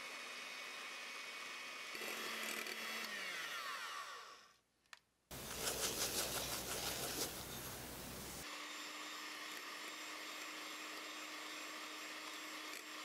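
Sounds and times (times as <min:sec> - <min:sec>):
electric hand mixer whirring: 0:00.0 - 0:04.6, 0:08.4 - 0:13.0.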